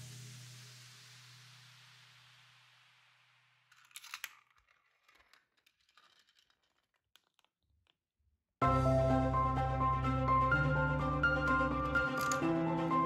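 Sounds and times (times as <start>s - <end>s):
marble rolling on track: 3.7s - 7.9s, 12.2s - 12.4s
marble clattering: 3.7s - 8.0s, 12.1s - 12.5s.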